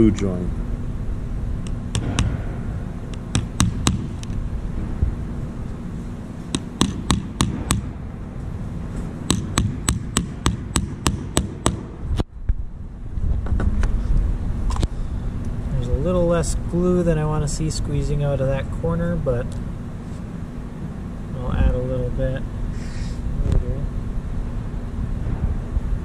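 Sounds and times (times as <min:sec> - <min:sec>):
hammer tapping nails into wood: 0:03.2 - 0:04.1, 0:06.6 - 0:07.9, 0:09.3 - 0:11.9.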